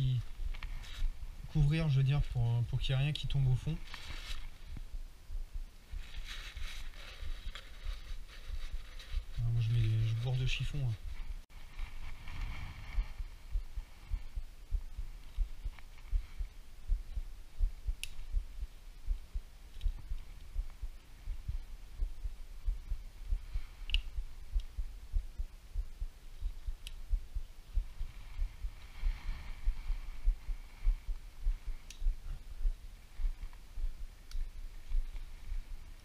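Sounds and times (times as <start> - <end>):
faint rustle of hands and tools: 0.0 - 5.1, 5.8 - 25.4, 26.0 - 36.0
sharp small clicks: 18.0 - 18.3, 23.8 - 24.8.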